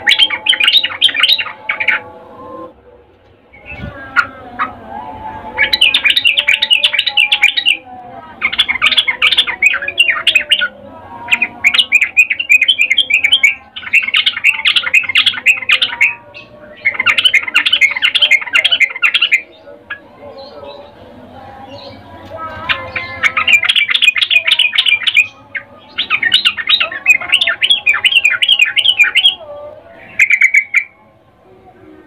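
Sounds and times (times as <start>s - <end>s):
bird chattering calls: 22.6s - 29.4s.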